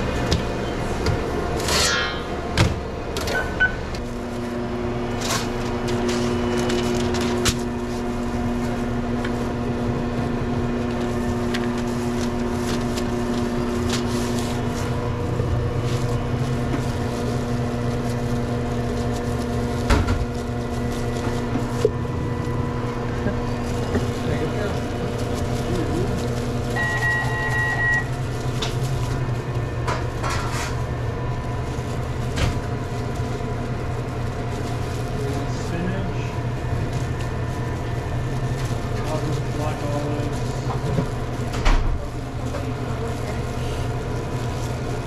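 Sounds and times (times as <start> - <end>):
kitchen background noise: 0.0 - 45.0
toaster oven humming: 0.0 - 45.0
toaster oven beep: 3.2 - 3.9, 26.7 - 28.3.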